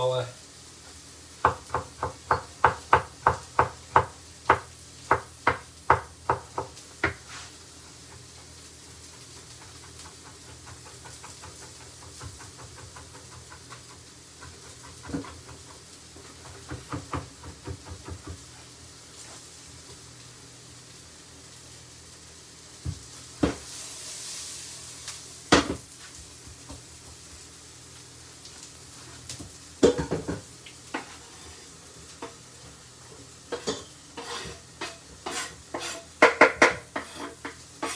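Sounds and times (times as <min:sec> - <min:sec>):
knife chopping on wooden board: 0:01.4 - 0:07.3, 0:14.4 - 0:15.6, 0:34.8 - 0:37.9.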